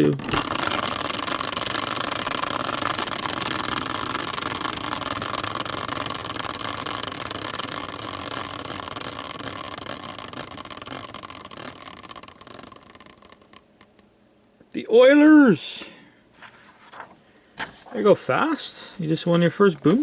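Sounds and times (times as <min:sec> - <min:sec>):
caster wheel whirring: 0:00.0 - 0:14.1.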